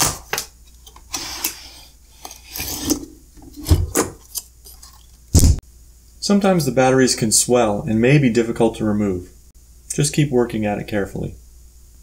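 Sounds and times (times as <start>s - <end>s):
dull thump: 5.3s - 5.6s.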